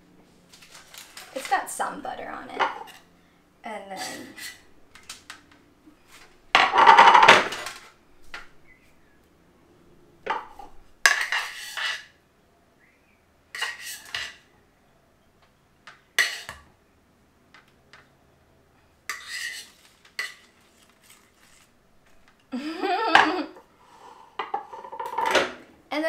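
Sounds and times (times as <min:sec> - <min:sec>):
utensil scraping a frying pan: 0:02.5 - 0:03.1, 0:03.9 - 0:04.7, 0:10.3 - 0:12.2, 0:13.5 - 0:14.5, 0:16.2 - 0:16.6, 0:19.1 - 0:21.7.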